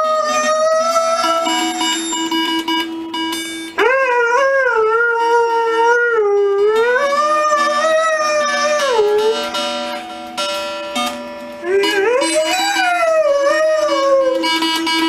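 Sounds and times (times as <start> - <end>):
dog howling: 0.0 - 1.9, 3.8 - 9.9, 11.6 - 14.6
acoustic guitar notes: 0.0 - 15.0.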